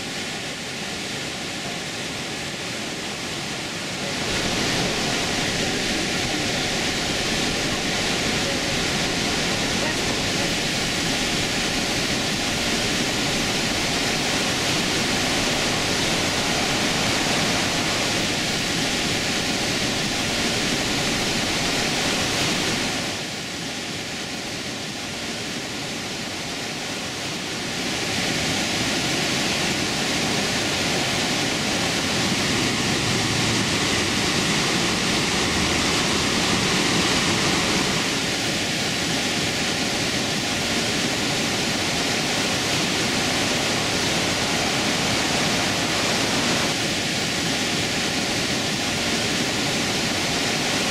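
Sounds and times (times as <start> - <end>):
waterfall roaring: 0.0 - 50.9.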